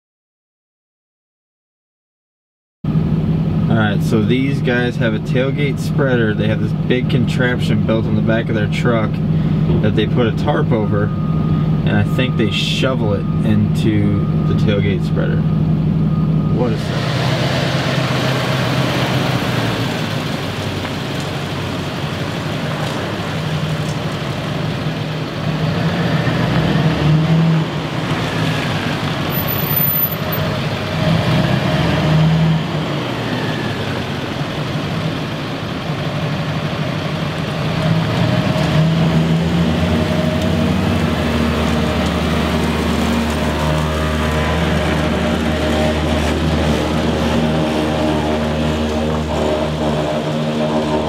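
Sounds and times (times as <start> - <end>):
pickup truck engine running: 2.9 - 25.9.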